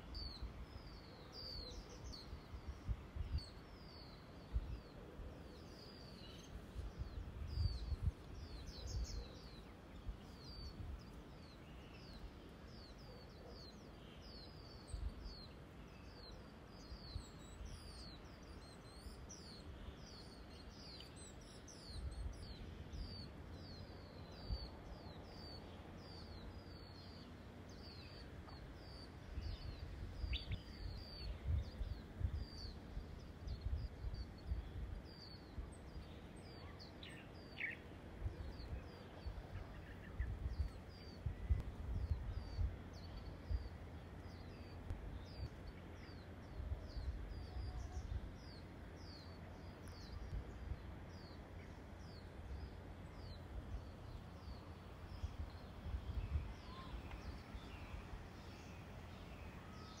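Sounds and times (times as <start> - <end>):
wind on microphone: 0.0 - 5.3, 6.5 - 11.0, 28.8 - 36.3, 37.0 - 49.2, 52.4 - 59.2
small bird chirping: 0.0 - 60.0.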